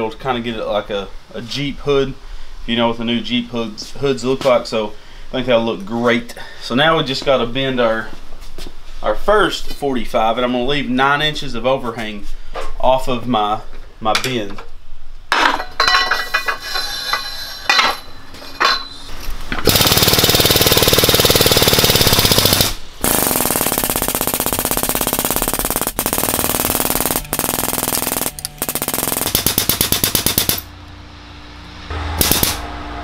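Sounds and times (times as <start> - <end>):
light metal clanks: 15.3 - 19.2.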